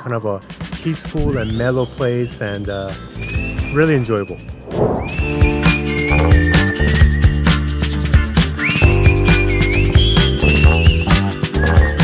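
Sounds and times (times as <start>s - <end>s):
whistled melody: 1.1s - 12.0s
drum beat and bass: 2.7s - 12.0s.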